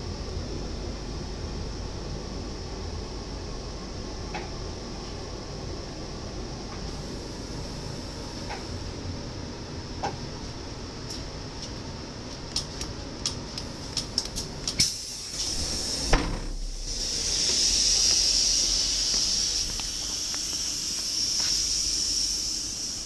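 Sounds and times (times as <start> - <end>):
loud air hiss: 6.9 - 9.0, 14.8 - 23.0
sharp clicks of train door: 8.4 - 8.7, 12.6 - 16.6
door thump: 16.1 - 16.9.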